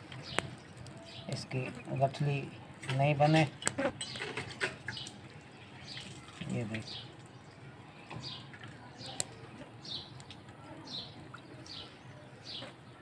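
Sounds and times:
bird chirping: 0.0 - 2.5.

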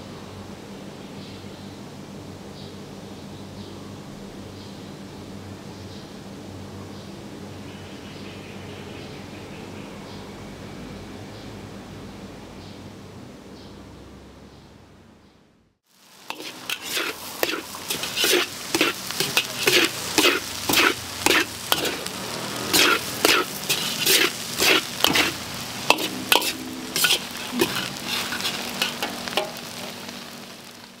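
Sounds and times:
food sizzling: 15.8 - 31.0
metal spatula scraping a wok: 16.3 - 30.4.

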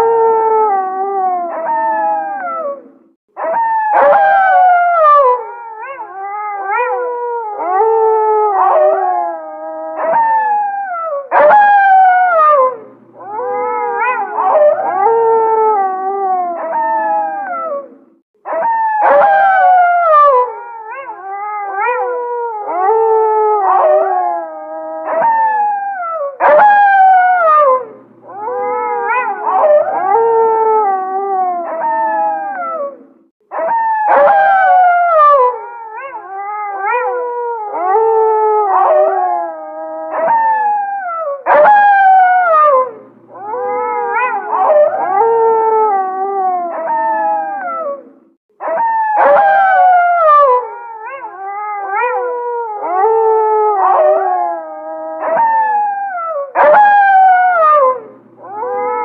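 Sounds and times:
wolves howling in chorus: 0.0 - 59.0
wolf yips: 1.5 - 4.8, 31.6 - 37.2, 40.1 - 45.6, 46.6 - 53.0, 55.2 - 57.6.

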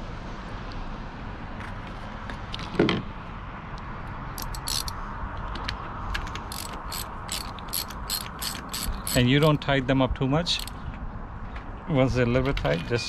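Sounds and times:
ratchet wrench clicking: 4.4 - 5.0, 6.4 - 9.6, 10.5 - 10.8.

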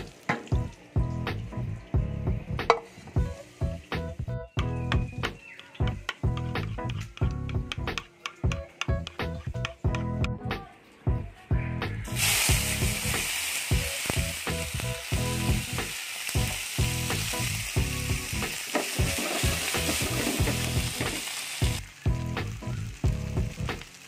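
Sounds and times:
vegetables sizzling in frying pan: 12.1 - 24.0.

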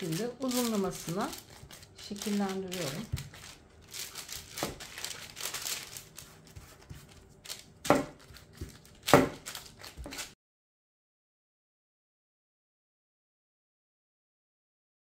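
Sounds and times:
parchment paper crinkling: 0.0 - 10.4
sharp paper crackles: 0.0 - 10.4.

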